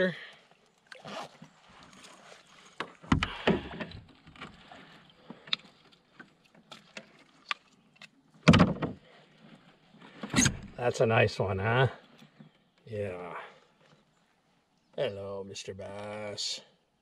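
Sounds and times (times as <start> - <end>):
small clicks and knocks of gear: 2.7 - 10.4.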